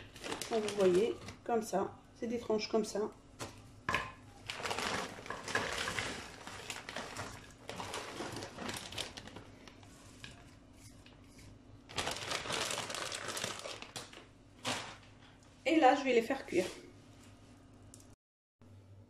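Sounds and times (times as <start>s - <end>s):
plastic bag crinkling: 0.0s - 1.5s, 4.4s - 10.5s, 11.9s - 15.3s.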